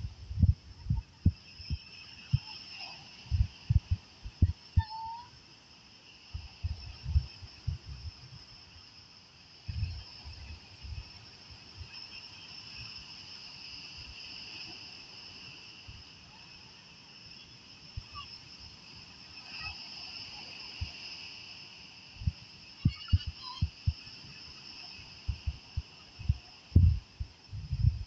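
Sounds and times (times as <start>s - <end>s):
faint surf: 0.0s - 28.0s
insects trilling: 0.0s - 28.0s
low thumps: 26.8s - 27.0s, 27.6s - 28.0s.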